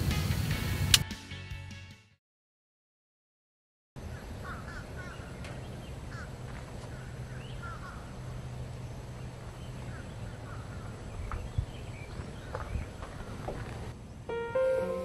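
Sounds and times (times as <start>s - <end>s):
birds calling: 4.0s - 14.0s.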